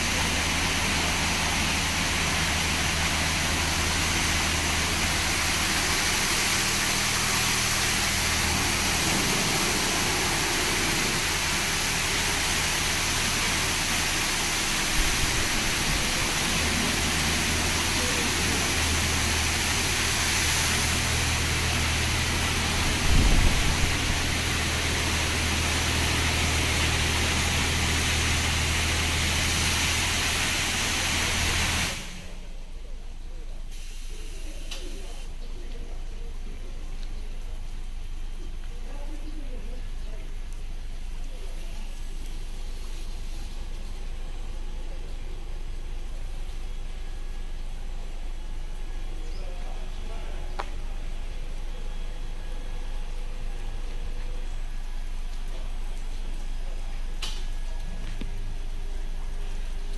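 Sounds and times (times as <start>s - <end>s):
high-pressure water spray hiss: 0.0s - 32.5s, 33.7s - 35.4s, 41.2s - 48.6s
low machine hum: 0.0s - 59.9s.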